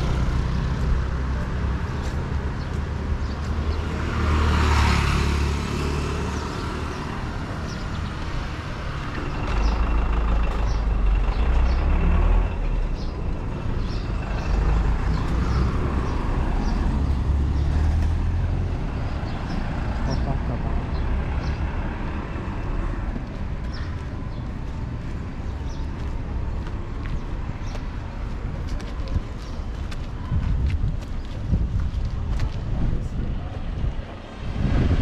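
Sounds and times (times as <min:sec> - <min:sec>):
vehicle passing: 0:00.0 - 0:23.2, 0:33.0 - 0:35.0
low engine rumble: 0:07.5 - 0:21.5, 0:28.0 - 0:35.0.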